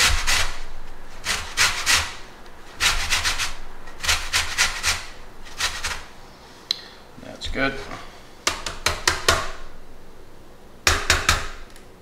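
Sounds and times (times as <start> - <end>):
peel rasping on metal grater: 1.2 - 2.2, 2.8 - 6.1.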